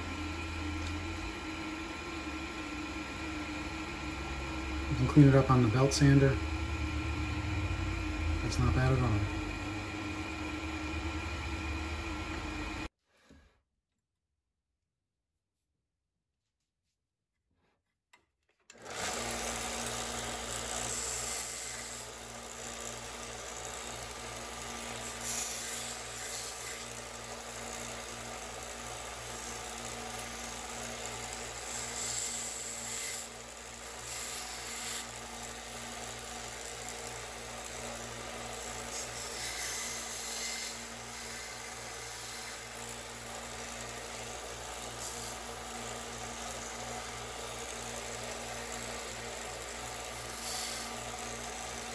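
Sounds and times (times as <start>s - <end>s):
belt sander motor hum: 0.0s - 12.9s, 18.7s - 51.9s
plastic part sanding on belt: 38.7s - 42.8s.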